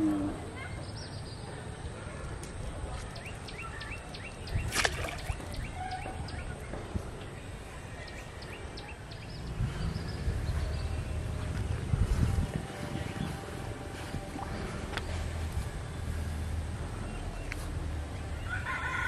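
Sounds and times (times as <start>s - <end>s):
small birds chirping: 0.6s - 13.6s
low steady rumble: 8.4s - 18.8s.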